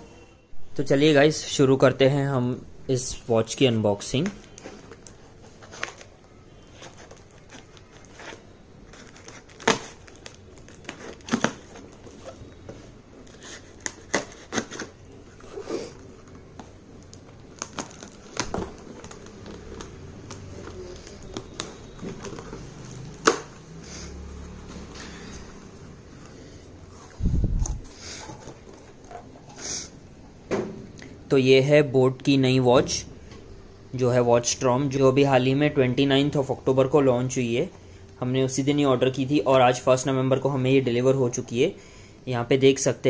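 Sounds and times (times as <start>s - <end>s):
packaging crinkling and tearing: 4.2s - 12.6s, 13.2s - 23.7s.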